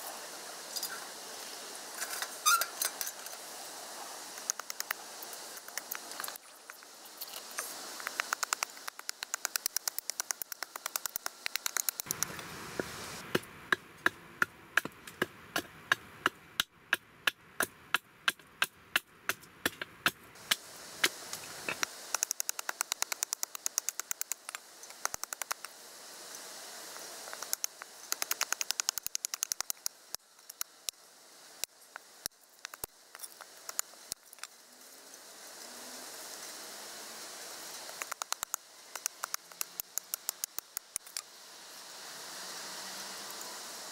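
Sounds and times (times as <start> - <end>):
hatchet chopping wood: 13.3 - 25.6.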